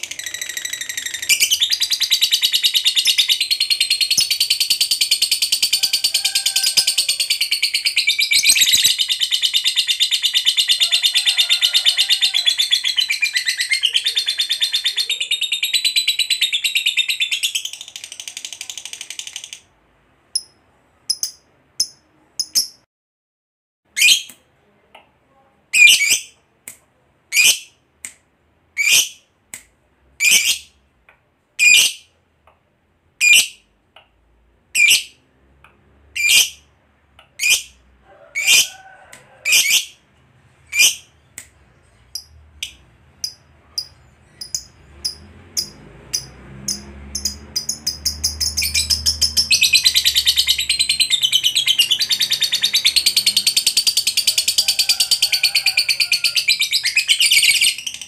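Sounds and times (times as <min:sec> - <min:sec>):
lovebird chirping: 0:00.0 - 0:06.0, 0:06.6 - 0:11.6, 0:12.4 - 0:19.6, 0:20.3 - 0:22.8, 0:30.2 - 0:30.8, 0:31.6 - 0:32.1, 0:40.7 - 0:55.3, 0:55.9 - 0:58.0.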